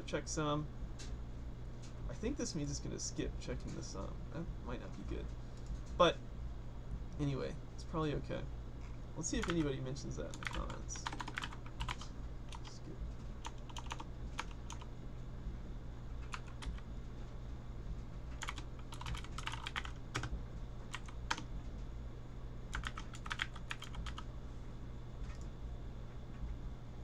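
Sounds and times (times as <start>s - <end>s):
steady low hum: 0.0s - 27.0s
typing on computer keyboard: 9.4s - 9.6s, 10.3s - 12.7s, 13.4s - 14.9s, 18.4s - 20.3s, 20.9s - 21.4s, 22.7s - 24.2s.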